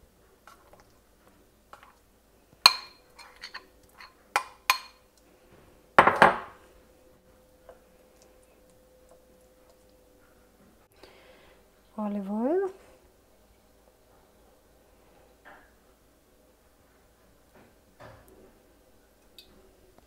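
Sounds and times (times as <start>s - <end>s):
spoon clinking on ceramic: 2.6s - 5.0s
spoon clattering: 2.7s - 5.0s.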